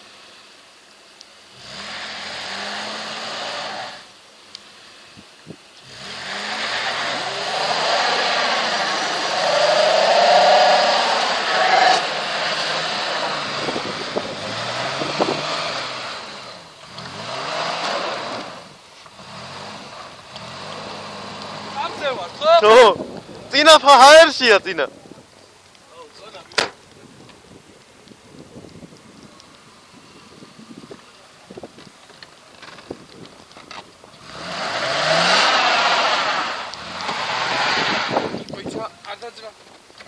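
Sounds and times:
car engine revving: 0:01.5 - 0:04.9, 0:05.8 - 0:22.9, 0:34.2 - 0:38.5
tyres spinning in snow: 0:01.5 - 0:05.2, 0:05.8 - 0:24.4, 0:29.7 - 0:38.8.

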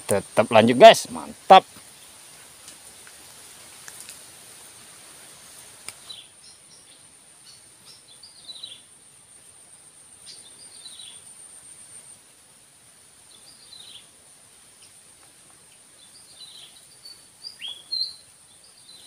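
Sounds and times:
high insect buzz: 0:00.0 - 0:19.0
faint clicks: 0:02.6 - 0:04.2, 0:05.8 - 0:06.1
falling bird chirps: 0:16.1 - 0:19.0.

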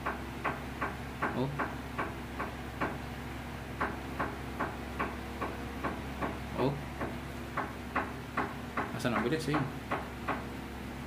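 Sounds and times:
low steady hum: 0:00.0 - 0:11.0
knock: 0:07.0 - 0:10.5.

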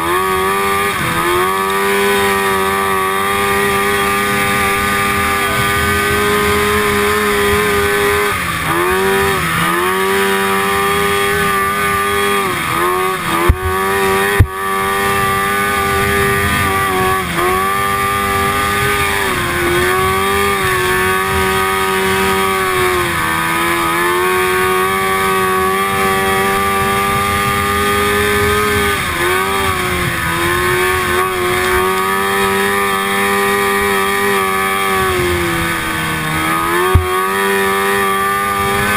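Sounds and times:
snowmobile engine revving: 0:00.0 - 0:38.9
sharp knocks: 0:36.8 - 0:37.2.

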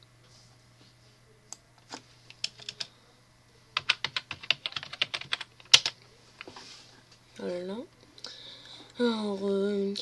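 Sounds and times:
typing on computer keyboard: 0:02.4 - 0:02.9, 0:03.8 - 0:06.0.

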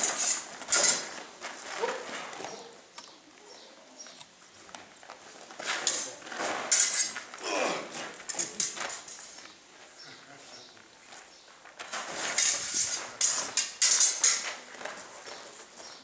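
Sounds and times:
swords clashing: 0:12.2 - 0:14.6.

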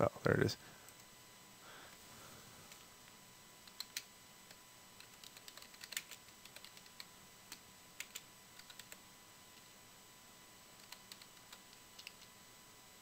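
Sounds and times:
faint keyboard typing: 0:03.6 - 0:09.7, 0:10.7 - 0:12.4.

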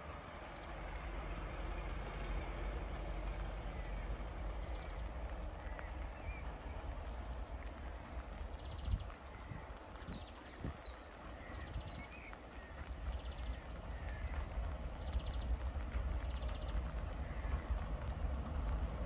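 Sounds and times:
low steady rumble: 0:00.0 - 0:19.0
songbird singing: 0:01.8 - 0:17.9.

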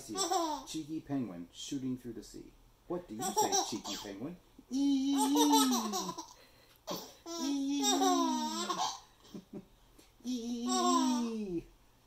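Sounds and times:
baby laughing: 0:00.0 - 0:00.7, 0:03.2 - 0:04.1, 0:05.0 - 0:09.6, 0:10.2 - 0:11.3.

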